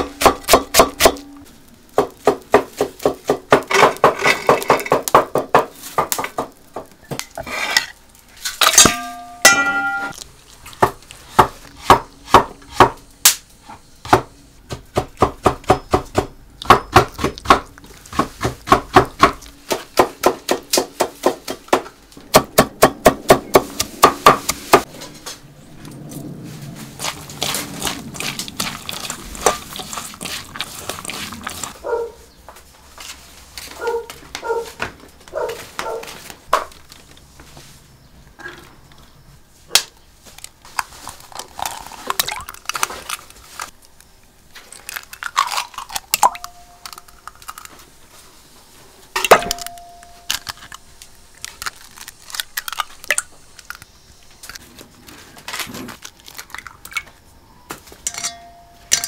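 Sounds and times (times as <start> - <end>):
squelching rustle of mixing by hand: 25.7 - 38.3, 39.4 - 44.0.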